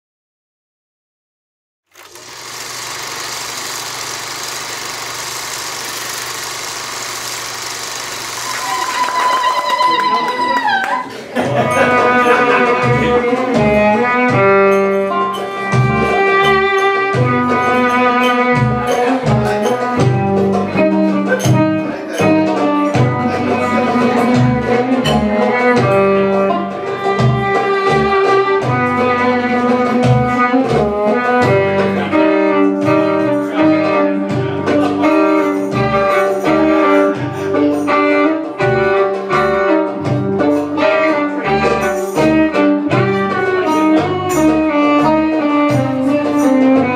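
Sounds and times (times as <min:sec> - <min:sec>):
plucked strings: 0:11.4 - 0:46.9
violin melody: 0:11.6 - 0:46.9.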